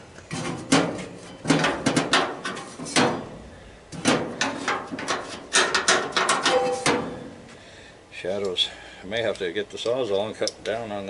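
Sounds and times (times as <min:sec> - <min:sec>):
sheet metal knocking and rattling: 0:00.3 - 0:03.3, 0:04.0 - 0:07.2.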